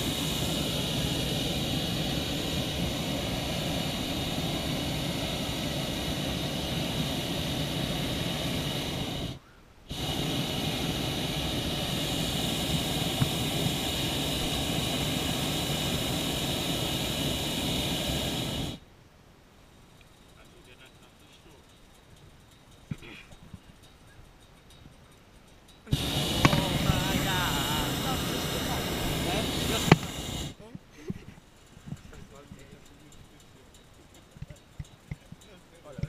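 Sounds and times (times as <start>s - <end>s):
propane burner rushing blasts: 0.0s - 18.8s, 25.9s - 30.7s, 31.6s - 36.0s.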